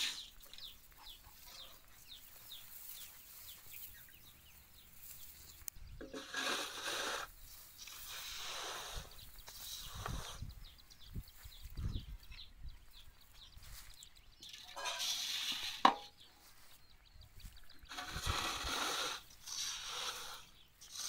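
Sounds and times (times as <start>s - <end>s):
grains rustling and hissing: 6.1s - 10.6s, 14.8s - 15.9s, 17.9s - 21.0s
metal skimmer scraping tray: 14.7s - 16.1s.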